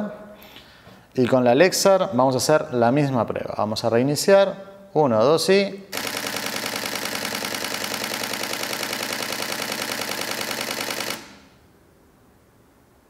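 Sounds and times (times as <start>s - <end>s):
camera shutter rapid clicking: 5.9s - 11.6s.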